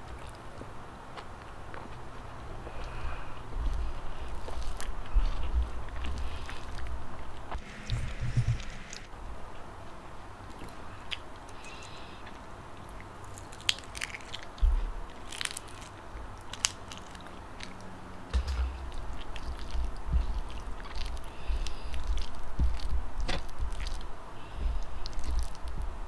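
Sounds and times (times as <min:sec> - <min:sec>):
biting and chewing: 0:00.0 - 0:09.1, 0:10.4 - 0:26.0
egg shell crackling: 0:13.2 - 0:24.1.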